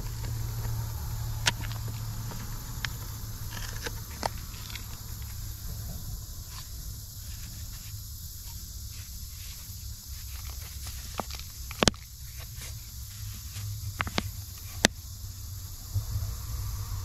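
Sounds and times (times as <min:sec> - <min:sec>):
low rumble: 0:00.0 - 0:07.5, 0:15.0 - 0:17.0
outdoor hiss: 0:00.0 - 0:17.0
small clicks and knocks: 0:10.2 - 0:15.0.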